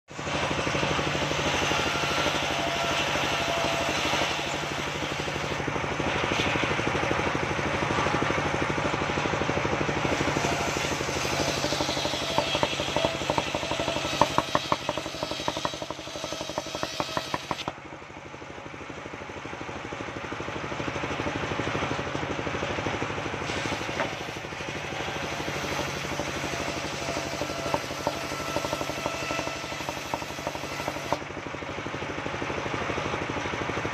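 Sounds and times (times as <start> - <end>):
saw blade cutting wood: 0.1 - 7.2, 9.1 - 17.8, 23.4 - 31.3
engine running steadily: 0.1 - 33.9.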